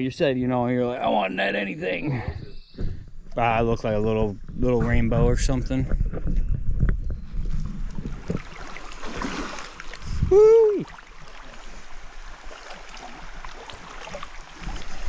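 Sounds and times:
river water rushing: 8.4 - 15.0
person calling out: 10.3 - 10.9.

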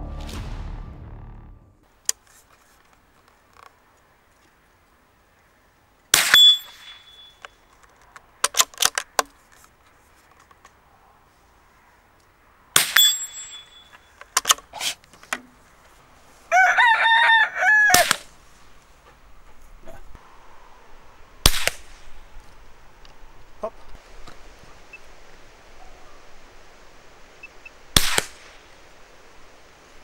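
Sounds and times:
rifle shots: 6.1 - 7.3, 12.8 - 13.7, 17.9 - 18.3, 21.4 - 22.2, 27.9 - 28.6
steel target ringing: 6.2 - 7.5, 12.8 - 14.1
rooster crowing: 16.5 - 18.1.

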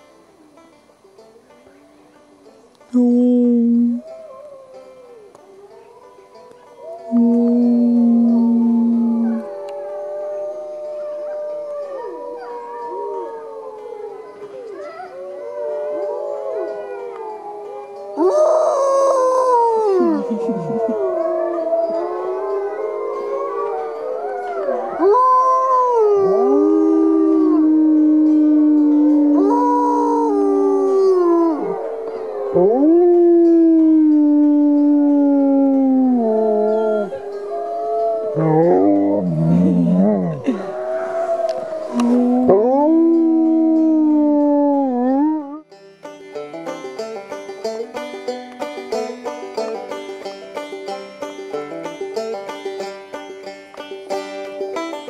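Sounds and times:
wolves howling: 4.0 - 45.7.

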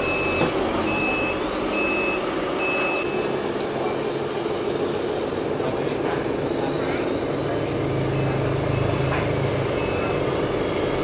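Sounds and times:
high electronic reversing beep: 0.0 - 3.4, 8.0 - 10.4
steady running noise: 0.0 - 11.0.

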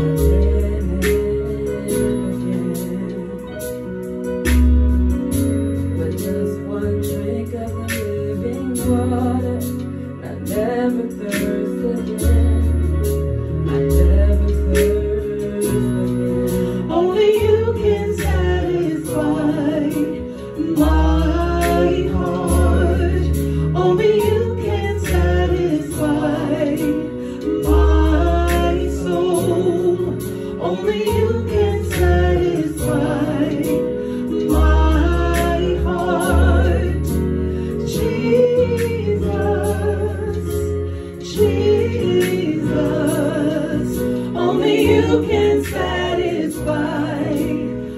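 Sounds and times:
deep bass line: 0.0 - 47.9
keyboard sustained chords: 0.0 - 47.9
backing singers: 16.9 - 47.9.

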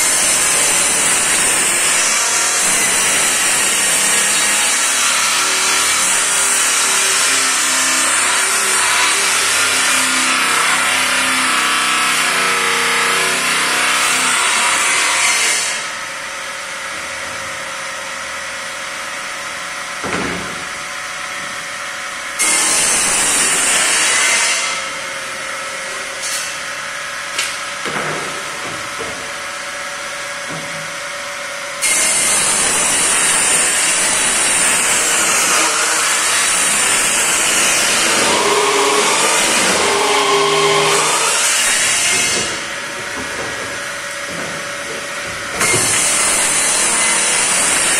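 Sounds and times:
table saw cutting panels: 0.0 - 47.9
table saw blade humming: 31.8 - 43.9, 44.8 - 47.9.

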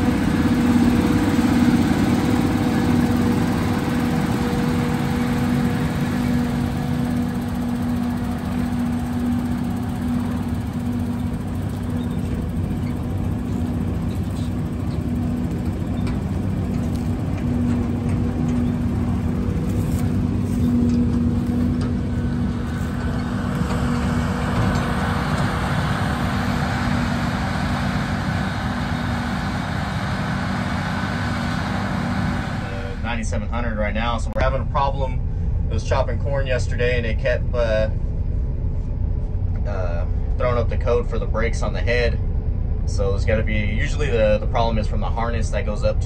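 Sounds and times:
truck diesel engine passing: 0.0 - 36.8
forage harvester chopping: 18.9 - 25.5.

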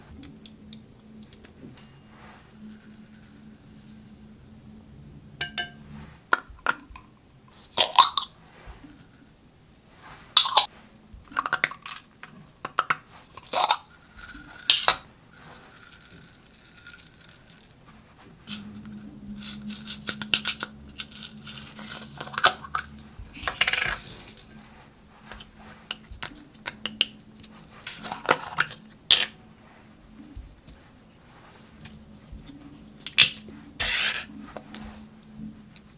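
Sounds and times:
glitter pouring rattle: 13.6 - 17.8, 19.4 - 24.7.

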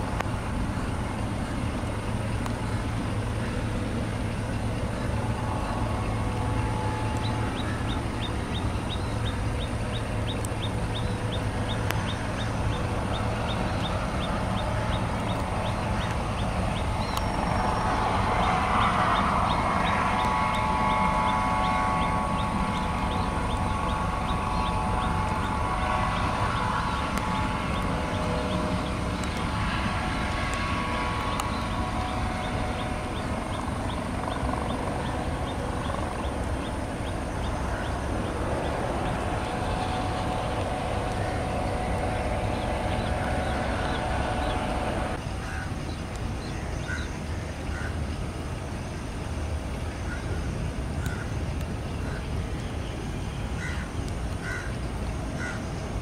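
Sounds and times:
jet engines rumbling and whining: 0.0 - 56.0.

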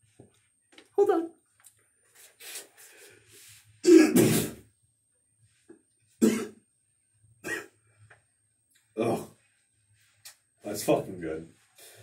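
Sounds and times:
man clearing his throat: 3.8 - 4.6, 6.2 - 6.6, 7.4 - 7.7.

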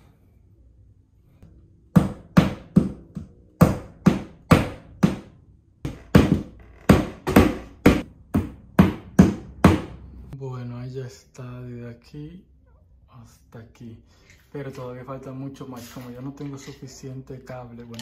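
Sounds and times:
hammer strikes: 1.9 - 5.4, 6.1 - 10.1.

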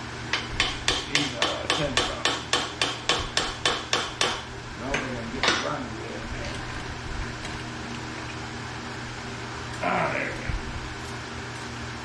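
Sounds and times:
hammer tapping: 0.4 - 5.7.

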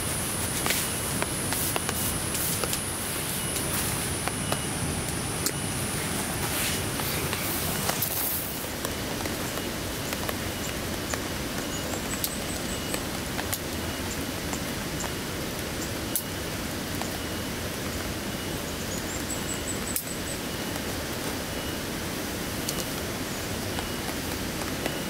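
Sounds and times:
heavy rain: 0.0 - 25.0
sharp drip clicks: 0.6 - 5.9, 8.8 - 15.2, 15.8 - 18.0, 22.6 - 23.1.

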